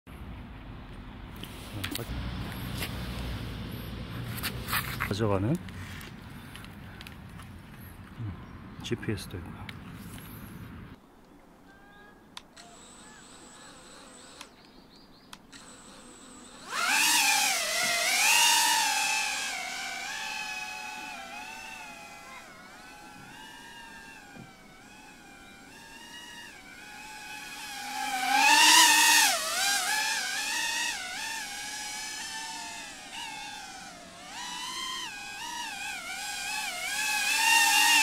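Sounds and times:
drone propellers whining: 12.6s - 14.7s, 15.5s - 38.0s.

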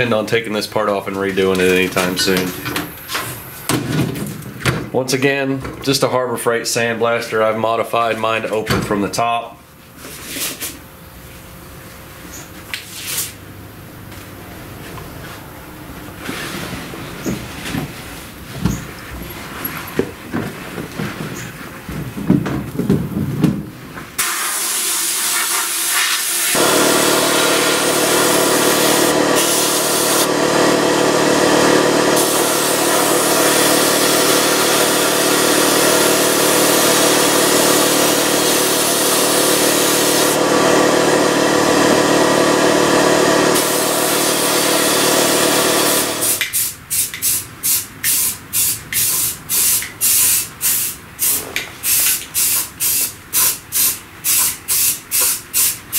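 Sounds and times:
spray-paint can hissing: 24.2s - 30.3s, 32.2s - 40.4s, 43.6s - 45.1s, 45.8s - 55.9s
sandblast gun hissing: 24.2s - 40.5s, 43.4s - 55.9s.

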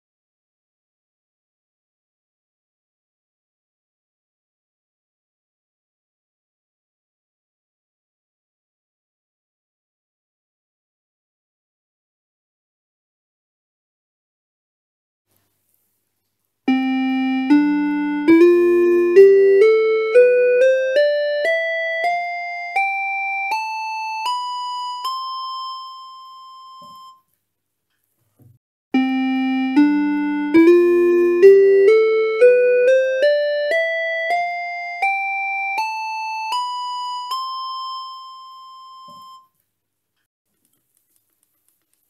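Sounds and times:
keyboard playing rising scale: 16.7s - 25.9s, 29.0s - 38.4s.

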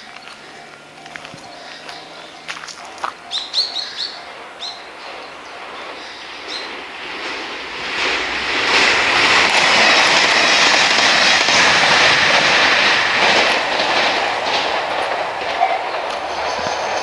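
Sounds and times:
train passing: 0.0s - 17.0s
wheel clicks over rail joints: 8.6s - 17.0s.

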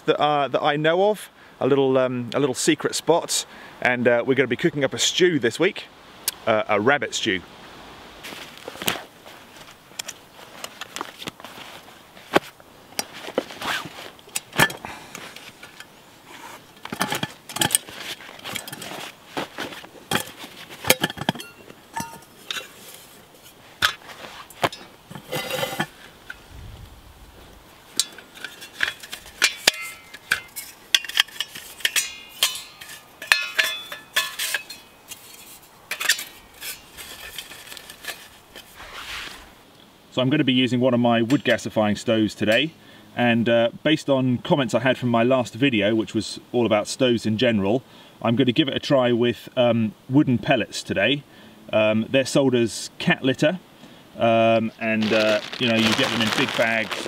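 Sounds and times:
canvas bag rustling: 10.3s - 15.6s, 22.0s - 26.2s, 36.8s - 39.6s, 54.8s - 57.0s
metal cookware clinking and rattling: 20.1s - 22.8s, 28.0s - 38.3s.

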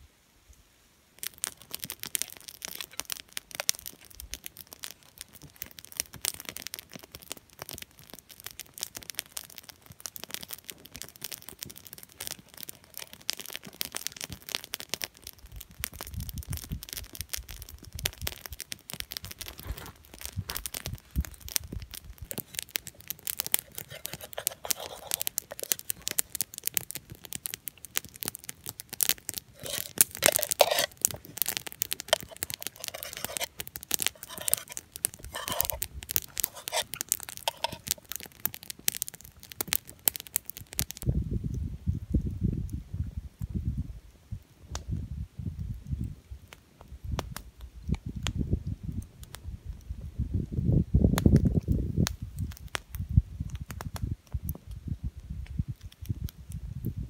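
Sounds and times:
campfire crackling and popping: 1.1s - 57.0s
wooden utensil scraping frying pan: 23.6s - 25.8s, 29.6s - 38.1s.

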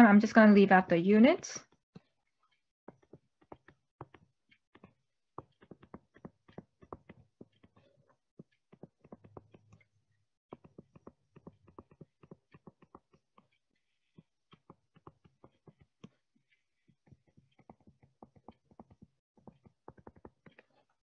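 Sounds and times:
stylus tapping on tablet screen: 2.9s - 9.9s, 10.5s - 16.2s, 16.8s - 20.9s.

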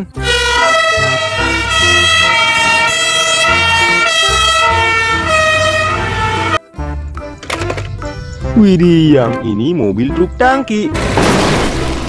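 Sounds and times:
fire engine siren: 0.2s - 6.6s.

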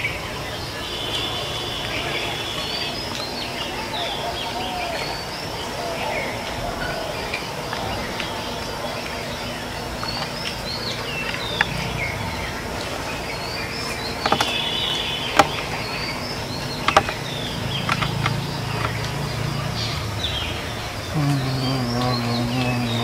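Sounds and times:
small birds chirping: 0.0s - 23.0s
insect buzzing hum: 7.6s - 23.0s.

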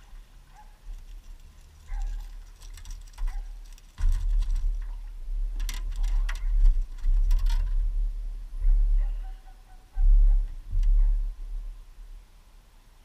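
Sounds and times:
low rumble: 3.5s - 12.4s.

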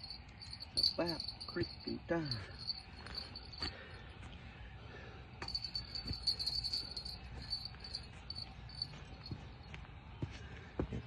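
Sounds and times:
crickets chirping: 0.0s - 4.0s, 5.4s - 9.4s.

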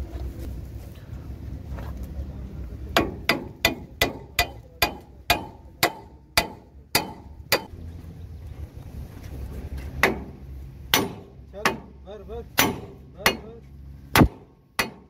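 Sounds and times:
hammer blows on metal: 10.0s - 13.6s.

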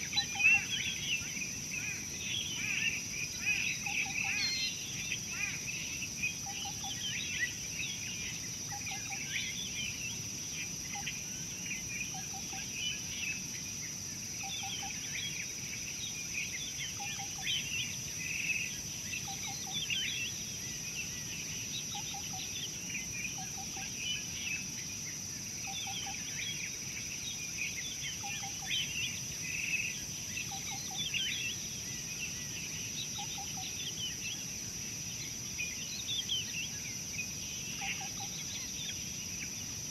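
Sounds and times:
high insect drone: 0.0s - 39.9s
small birds chirping: 0.0s - 39.9s.

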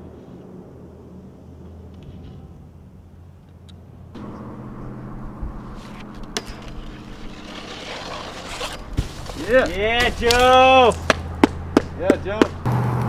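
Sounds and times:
low engine hum: 0.6s - 9.0s, 11.0s - 13.0s
snowboard scraping along rail: 4.2s - 10.5s.

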